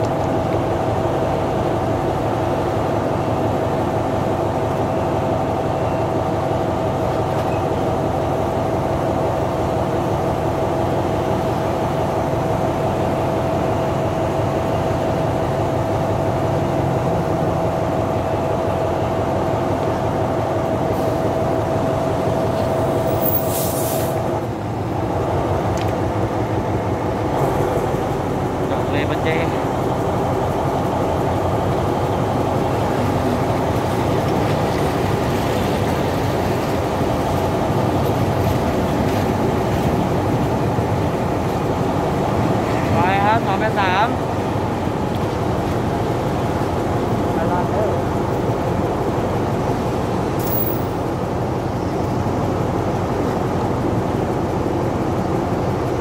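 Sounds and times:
train low rumble: 0.0s - 56.0s
train whine: 0.0s - 56.0s
air hiss: 23.4s - 24.3s.

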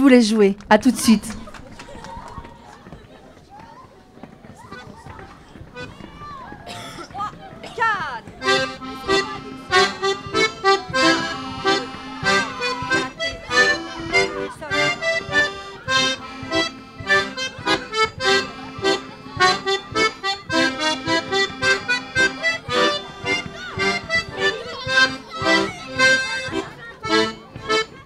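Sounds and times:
piano and accordions playing polka: 8.4s - 28.0s.

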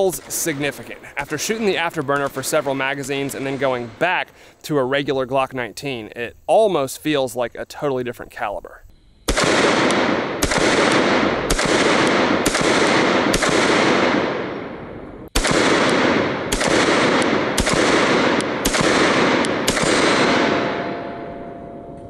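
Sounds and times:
pistol shots echoing: 0.0s - 4.2s, 9.3s - 21.6s
faint extra gunshot reports: 9.2s - 21.1s.

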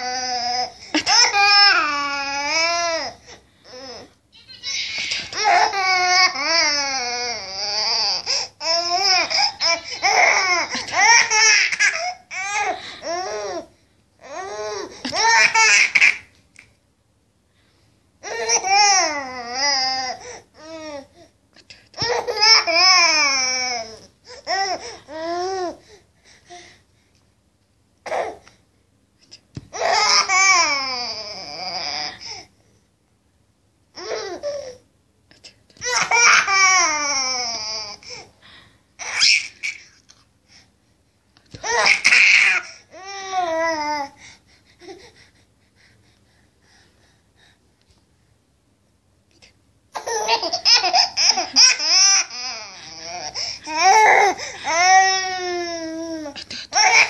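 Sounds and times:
baby laughing: 9.0s - 12.7s, 15.0s - 16.4s, 50.0s - 53.1s.

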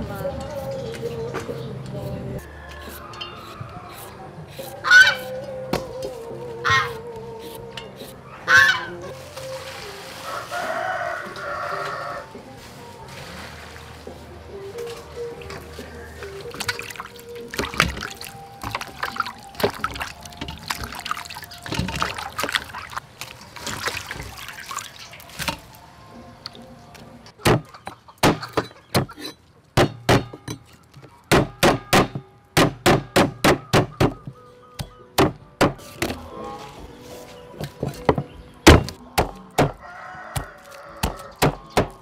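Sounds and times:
stalks splashed in water: 15.4s - 25.8s, 38.7s - 42.0s
cleaver chopping on wooden block: 29.8s - 30.4s, 31.3s - 36.2s, 37.8s - 42.0s.

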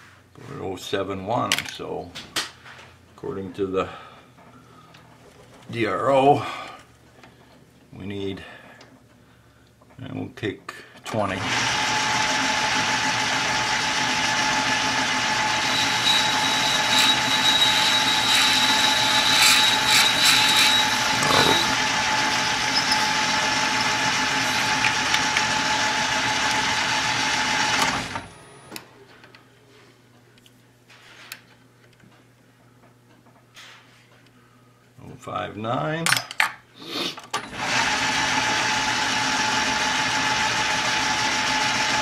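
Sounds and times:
metal lathe whining: 11.4s - 28.3s.

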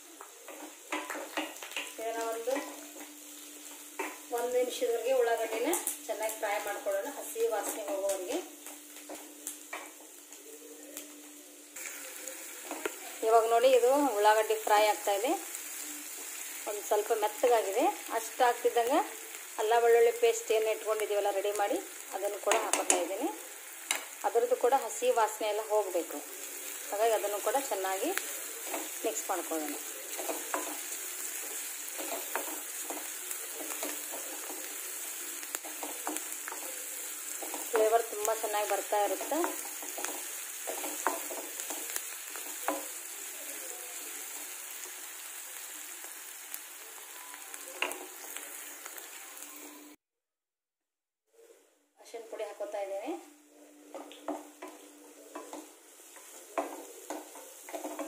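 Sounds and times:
onions sizzling in hot oil: 0.0s - 50.0s, 52.0s - 58.0s
spatula scraping a pan: 29.8s - 37.8s, 53.9s - 58.0s
wooden spatula scraping a pan: 53.9s - 58.0s.

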